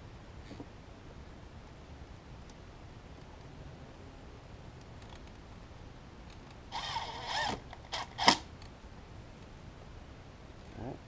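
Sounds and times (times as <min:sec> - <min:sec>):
impact driver driving screws: 0:06.8 - 0:08.5.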